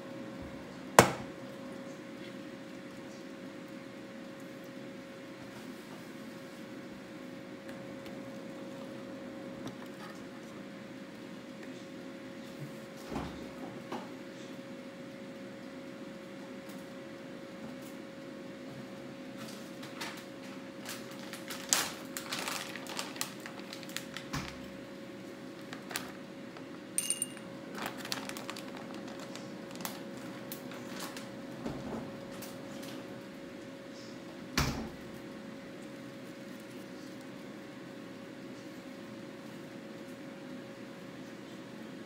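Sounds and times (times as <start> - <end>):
faint steady hum: 0.0 - 42.0
short ringing clink: 27.0 - 27.4.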